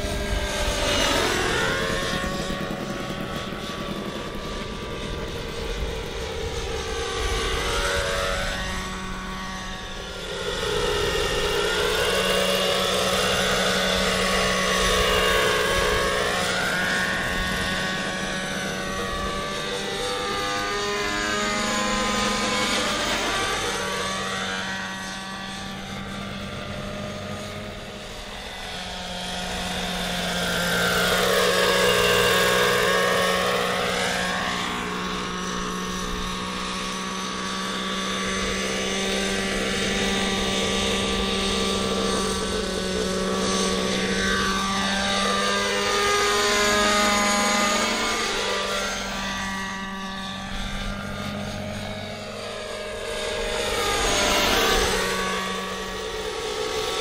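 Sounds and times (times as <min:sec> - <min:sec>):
model helicopter engine and rotor whine: 0:00.0 - 0:57.0.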